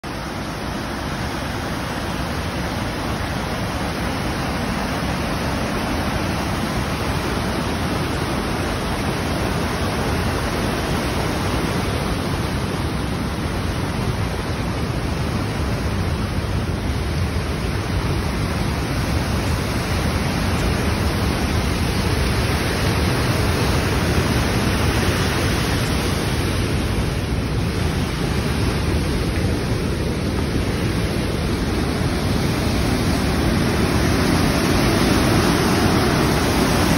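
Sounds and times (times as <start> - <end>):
river roaring over rapids: 0.0 - 36.9
heavy rain falling: 17.5 - 36.9.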